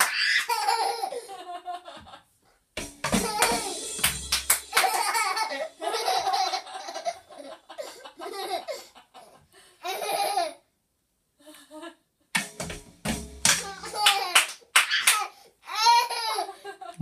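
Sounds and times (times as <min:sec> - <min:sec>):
toddler laughing: 0:00.0 - 0:01.3, 0:04.7 - 0:10.6, 0:13.6 - 0:16.7.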